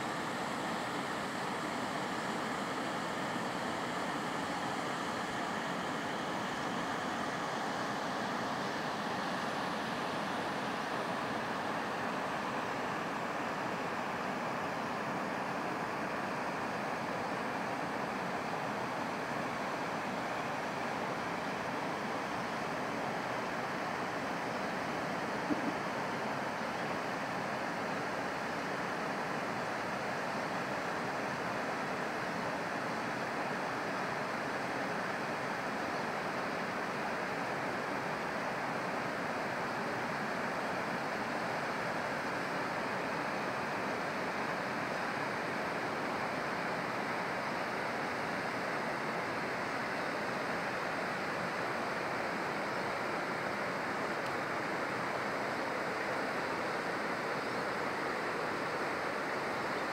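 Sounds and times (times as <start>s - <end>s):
river rushing over stones: 0.0s - 59.9s.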